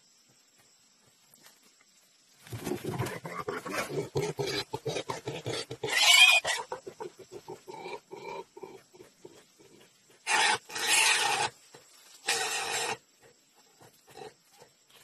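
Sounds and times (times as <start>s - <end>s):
pig grunting: 2.7s - 14.7s
pig squealing: 3.0s - 7.0s, 10.2s - 11.5s, 12.2s - 13.0s.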